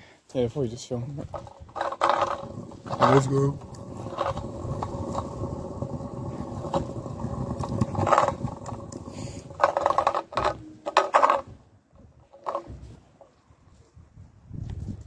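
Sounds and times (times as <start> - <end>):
scooter wheels rolling on pavement: 1.0 - 13.4
scooter clattering: 1.3 - 11.5, 12.1 - 13.3.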